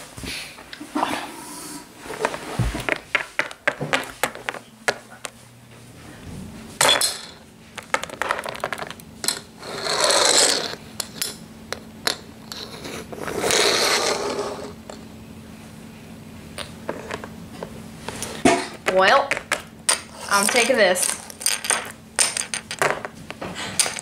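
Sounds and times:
plastic toys scraping: 0:01.6 - 0:03.1, 0:09.6 - 0:10.8, 0:12.4 - 0:14.8.

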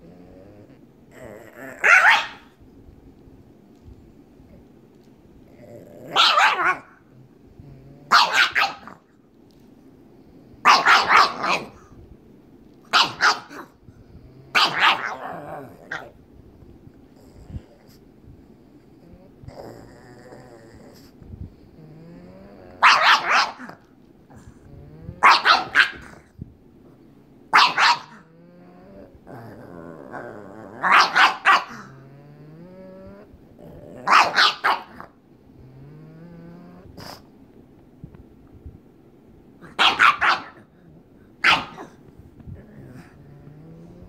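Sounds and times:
dog growling: 0:00.0 - 0:02.6, 0:04.4 - 0:09.2, 0:13.0 - 0:16.3, 0:16.9 - 0:26.4, 0:27.5 - 0:37.3, 0:39.6 - 0:44.0
dog barking: 0:01.8 - 0:02.5, 0:06.1 - 0:06.9, 0:08.1 - 0:09.0, 0:10.6 - 0:11.8, 0:12.9 - 0:13.7, 0:14.5 - 0:15.2, 0:22.8 - 0:23.8, 0:25.2 - 0:26.2, 0:27.5 - 0:28.2, 0:30.8 - 0:31.8, 0:34.1 - 0:35.0, 0:39.8 - 0:40.6, 0:41.4 - 0:42.0.

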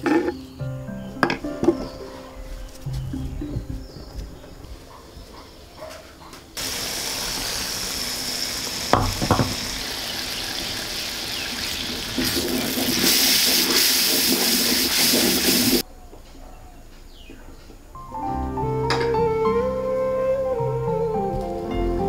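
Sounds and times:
gravy sizzling and bubbling in pan: 0:06.6 - 0:15.8
sharp knocks: 0:09.0 - 0:09.6.

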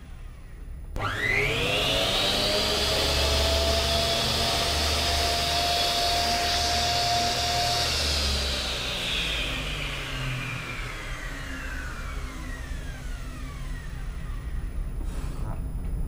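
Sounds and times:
miter saw motor whining: 0:00.1 - 0:14.9.

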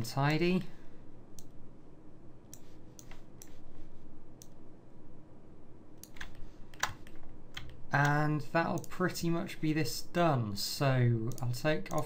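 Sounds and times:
faint background hum: 0:00.0 - 0:12.0
computer mouse clicking: 0:02.5 - 0:03.6, 0:06.0 - 0:09.0, 0:11.3 - 0:12.0.

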